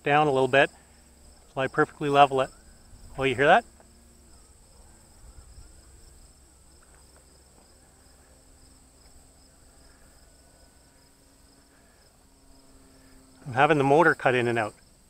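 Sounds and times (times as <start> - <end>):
crickets chirring: 0.0 - 15.0
model airplane motor humming: 0.0 - 15.0.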